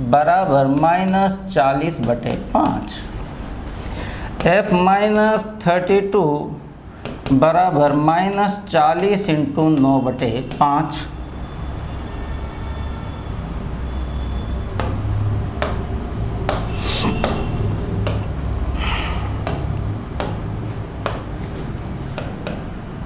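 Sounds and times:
stylus tapping on screen: 0.3s - 3.1s, 4.4s - 6.0s, 6.9s - 11.0s, 14.7s - 18.6s, 19.4s - 22.7s
steady low hum: 14.6s - 23.0s.

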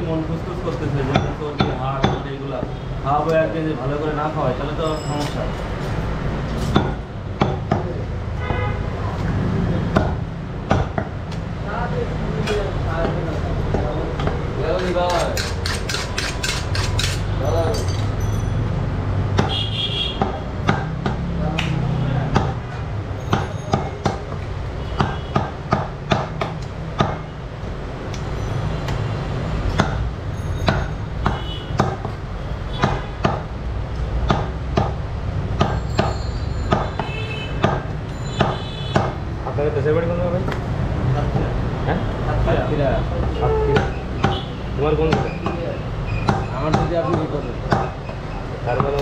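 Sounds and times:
knife chopping meat on wooden block: 6.7s - 8.0s, 9.9s - 11.4s, 13.0s - 17.3s, 19.3s - 22.7s, 23.3s - 27.3s, 29.7s - 32.2s, 32.8s - 33.6s, 34.2s - 39.6s, 43.2s - 44.5s, 45.1s - 45.6s, 46.2s - 49.0s.

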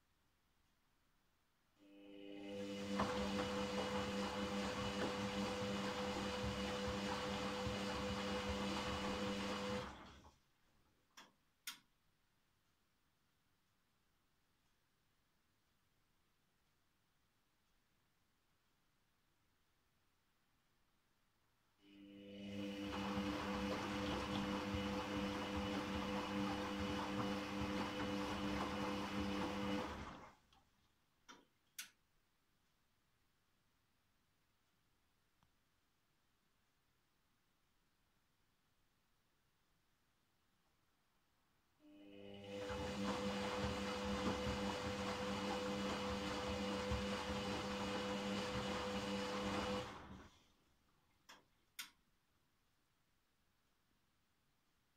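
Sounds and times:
washing machine drum turning: 2.8s - 9.8s, 22.9s - 29.8s, 42.6s - 49.8s
wet laundry tumbling: 3.0s - 10.2s, 22.9s - 30.3s, 42.6s - 50.3s.

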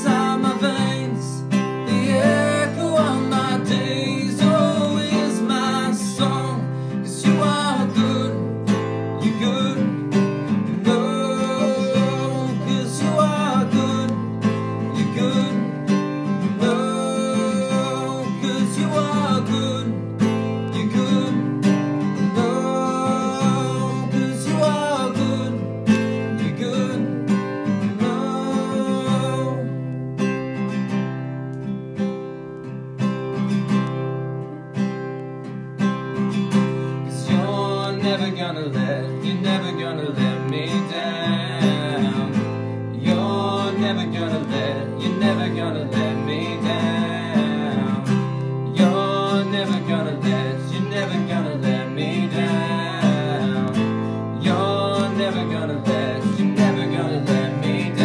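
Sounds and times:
person singing worship song: 0.0s - 8.6s, 37.1s - 58.0s
acoustic guitar strumming: 0.0s - 58.0s.

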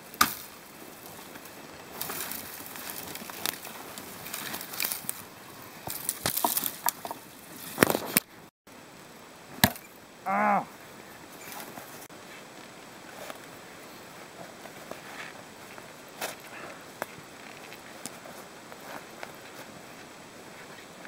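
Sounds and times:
branches dragged through brush: 0.0s - 8.3s
branches snapping and cracking: 0.0s - 8.3s.

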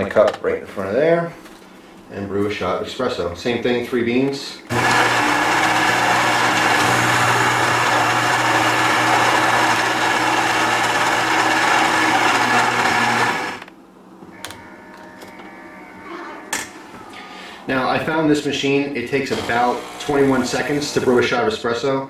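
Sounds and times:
coffee grinder whirring: 4.7s - 13.7s, 19.3s - 21.2s.

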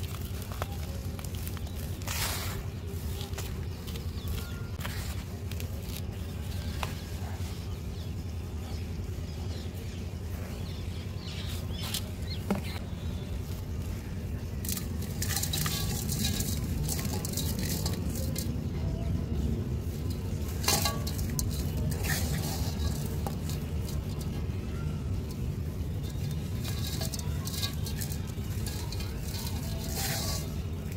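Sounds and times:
dry mud crumbling hiss: 0.0s - 7.1s
dry mud patters and clicks: 0.0s - 7.4s, 13.4s - 30.9s.

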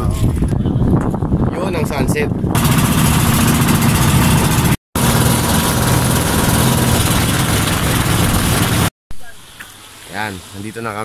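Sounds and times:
wind: 0.0s - 11.0s
boat engine running: 2.6s - 8.9s
water rushing: 2.6s - 8.9s.

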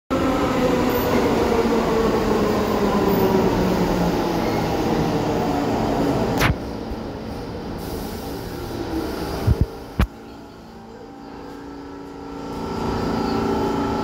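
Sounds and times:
subway train wheel rumble: 0.1s - 14.0s
falling train whine: 10.6s - 14.0s.

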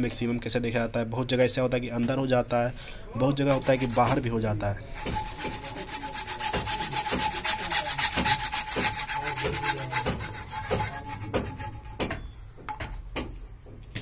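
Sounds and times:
hacksaw cutting plastic pipe: 3.4s - 4.3s, 4.9s - 12.3s.

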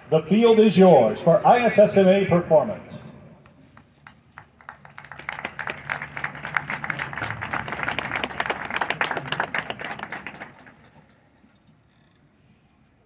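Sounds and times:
crowd applauding: 3.6s - 11.4s.

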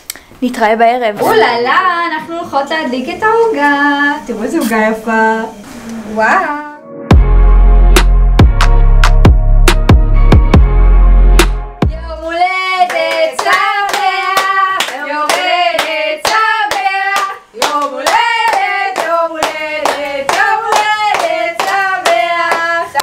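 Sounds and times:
people singing a birthday song: 12.0s - 23.0s
people clapping in time: 12.8s - 23.0s.

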